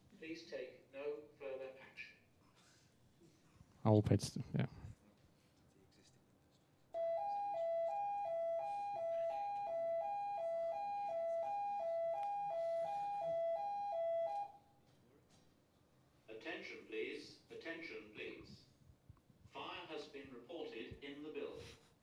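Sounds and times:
fire alarm two-tone warble: 7.0 - 14.6.

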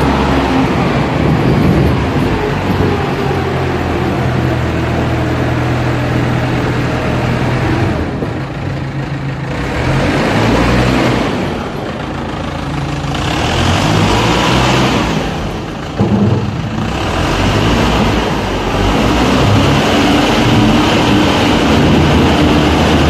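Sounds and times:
loader engine running loud: 0.0 - 23.0
metal clank: 15.9 - 17.0.

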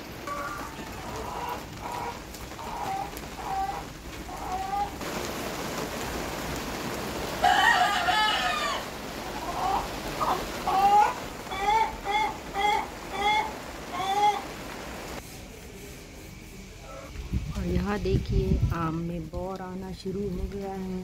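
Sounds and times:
rain pattering: 0.0 - 15.7, 17.1 - 21.0
chickens clucking: 0.2 - 5.0, 9.2 - 14.8
rooster crowing: 7.4 - 14.5.

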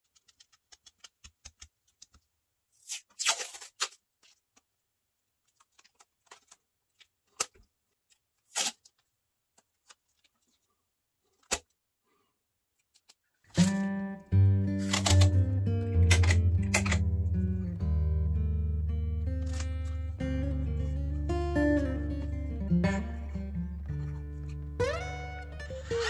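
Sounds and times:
tape tearing off: 2.8 - 4.0, 8.4 - 9.0, 13.5 - 14.0, 14.7 - 17.2, 19.4 - 20.0
sharp clicks: 16.0 - 17.1.

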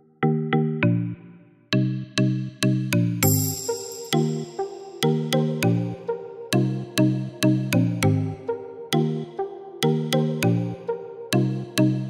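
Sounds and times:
synth-led electronic music: 0.0 - 12.0.

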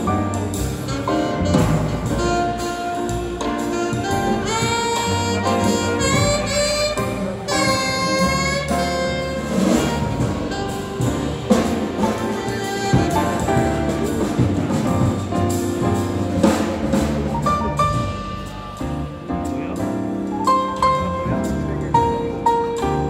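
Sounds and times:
grand piano accompaniment: 0.0 - 23.0
low bass notes: 0.0 - 23.0
saxophone melody: 0.2 - 16.1.

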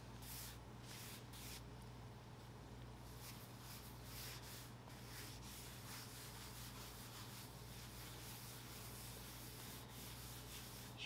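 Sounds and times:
cloth rubbing on wood: 3.1 - 11.0.

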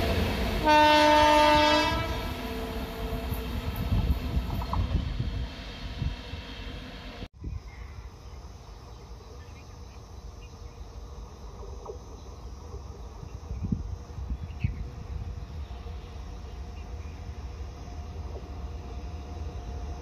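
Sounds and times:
faint insects chirping: 7.4 - 20.0.

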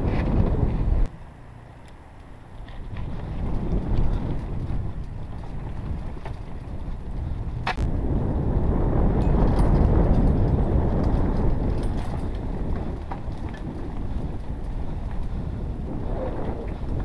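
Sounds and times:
wind on microphone: 0.0 - 1.1, 2.6 - 17.0
bike tyres rumbling on dirt: 0.0 - 17.0
light rattles and clicks: 9.2 - 15.6.

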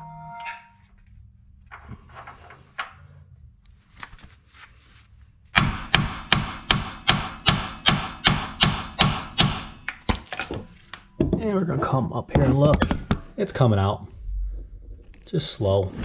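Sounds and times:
hammer striking metal bolt: 5.6 - 10.7
tool clinks and handling: 9.8 - 11.2.

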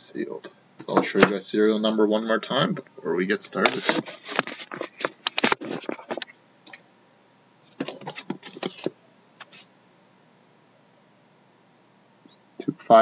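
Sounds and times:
cardboard box rustling and tapping: 7.8 - 8.9.

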